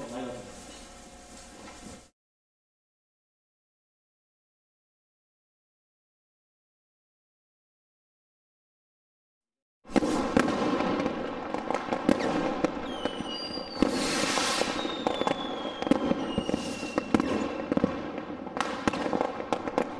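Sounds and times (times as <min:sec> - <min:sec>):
fireworks bangs and crackles: 0:09.9 - 0:19.9
falling firework whistles: 0:12.0 - 0:18.0.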